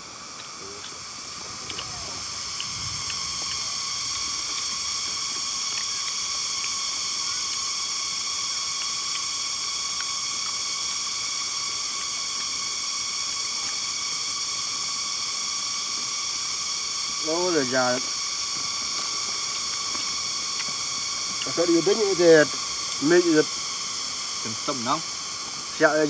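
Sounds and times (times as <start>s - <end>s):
high-pitched insect drone: 0.0s - 26.0s
faint clicks: 1.6s - 11.4s.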